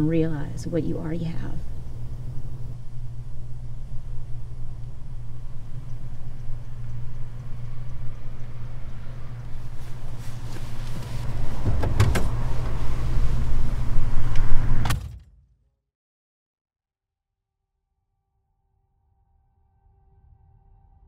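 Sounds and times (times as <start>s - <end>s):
car idling: 0.0s - 14.4s
car door shutting thunk: 10.5s - 12.8s
car door latch click: 11.6s - 12.7s.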